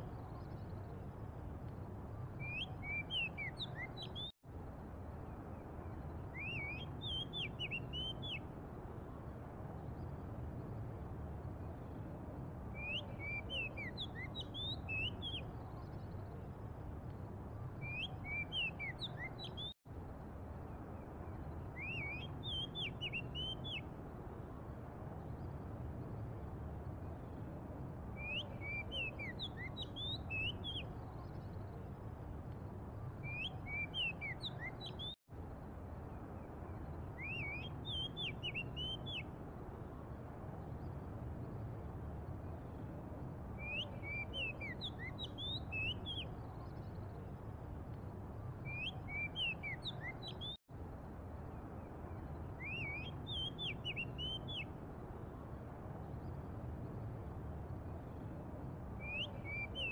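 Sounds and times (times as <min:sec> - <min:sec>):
bird singing whistled notes: 0:02.3 - 0:04.3, 0:06.0 - 0:08.4, 0:12.7 - 0:16.2, 0:17.7 - 0:19.8, 0:21.2 - 0:23.9, 0:28.1 - 0:31.8, 0:33.2 - 0:35.2, 0:36.7 - 0:39.3, 0:43.6 - 0:47.3, 0:48.6 - 0:50.6, 0:52.1 - 0:54.7, 0:59.0 - 0:59.9.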